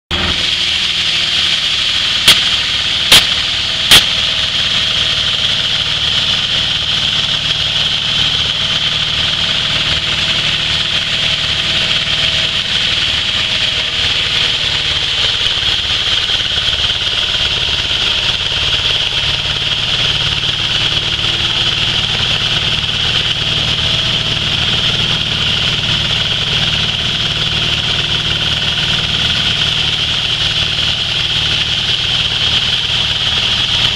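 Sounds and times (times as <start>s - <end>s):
petrol engine drone: 0.1s - 33.9s
grinding hiss: 0.2s - 33.9s.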